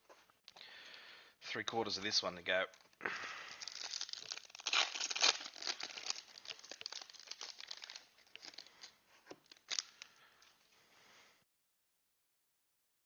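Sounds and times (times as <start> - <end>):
foil wrapper tearing and crinkling: 2.7 - 10.2.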